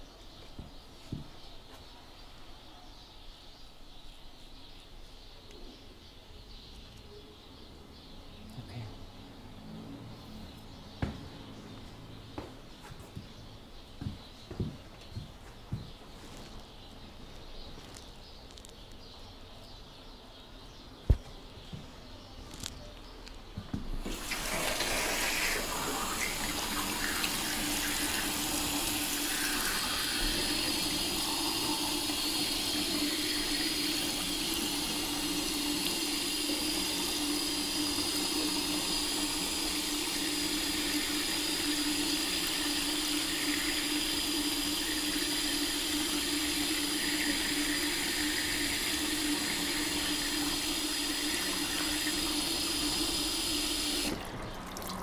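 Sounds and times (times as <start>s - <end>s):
tap water running into sink: 24.0s - 55.0s.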